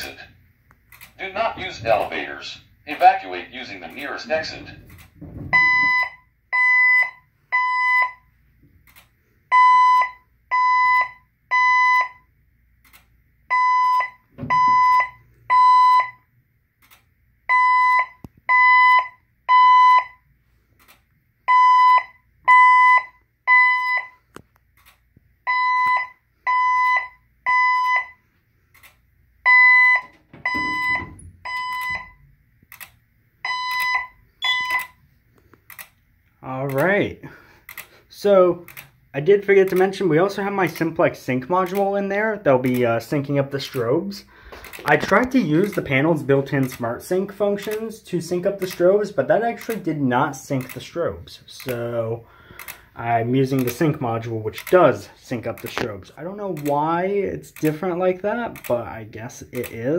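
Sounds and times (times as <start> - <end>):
fire alarm beeps: 5.5 - 8.3, 9.5 - 12.3, 13.5 - 16.3, 17.5 - 20.3, 21.5 - 24.2, 25.4 - 28.3, 29.4 - 32.3, 33.4 - 35.0.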